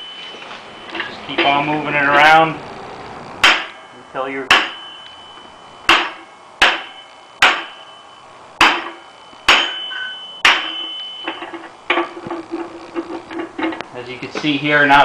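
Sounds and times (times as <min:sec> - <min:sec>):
sledgehammer blows on metal: 0:03.4 - 0:03.9, 0:04.5 - 0:05.0, 0:05.9 - 0:07.9, 0:08.6 - 0:12.2
metallic clatter: 0:08.6 - 0:14.6.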